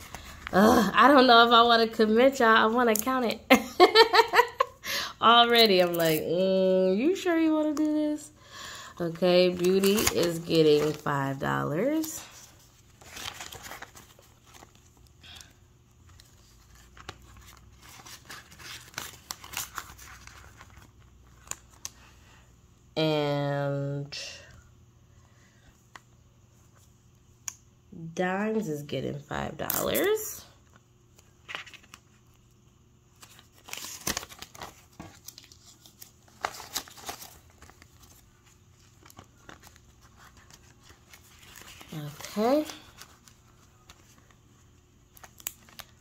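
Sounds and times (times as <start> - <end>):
banknotes and plastic rustling: 9.0 - 22.1, 33.1 - 46.0.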